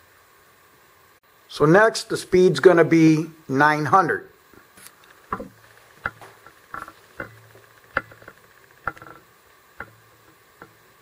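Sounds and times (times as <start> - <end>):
motors humming faintly: 4.2 - 11.0
cord slapping tripod leg: 4.8 - 10.8.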